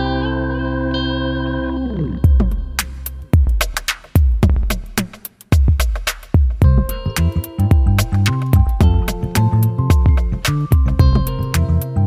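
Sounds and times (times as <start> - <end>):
electronic drum beat: 2.2 - 11.8.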